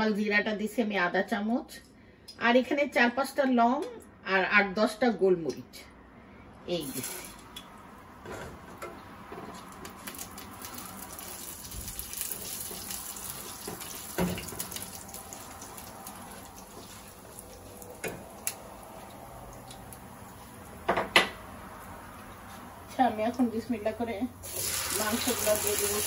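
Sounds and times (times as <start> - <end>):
spices sizzling in hot oil: 9.8 - 18.8, 24.4 - 26.0.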